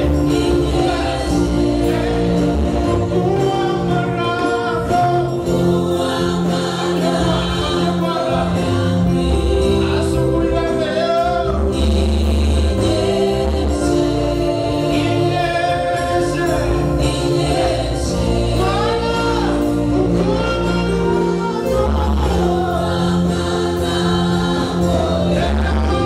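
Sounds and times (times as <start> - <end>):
instrumental accompaniment: 0.0 - 26.0
other singers joining: 0.0 - 26.0
man singing into microphone: 3.1 - 5.6, 14.8 - 17.0, 18.6 - 22.8.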